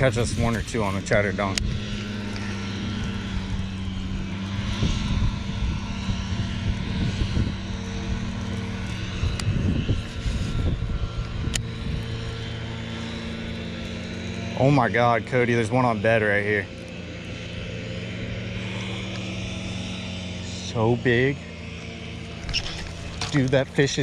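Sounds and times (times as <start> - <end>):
wind gusting on microphone: 0.0 - 13.8
machinery droning: 0.0 - 24.0.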